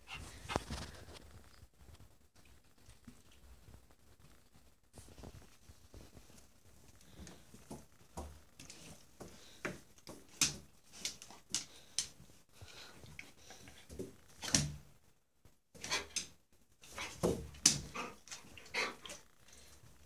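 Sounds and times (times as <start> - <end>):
dogs shuffling: 4.9 - 14.9.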